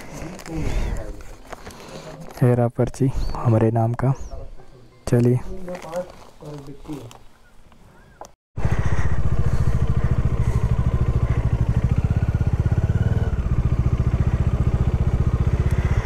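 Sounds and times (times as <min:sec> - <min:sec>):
motorcycle engine running: 0:08.6 - 0:16.0.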